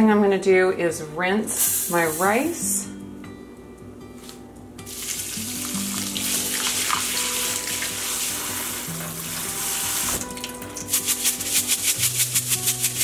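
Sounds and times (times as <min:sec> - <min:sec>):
background music: 0:01.0 - 0:13.0
tap water running into sink: 0:04.9 - 0:10.9.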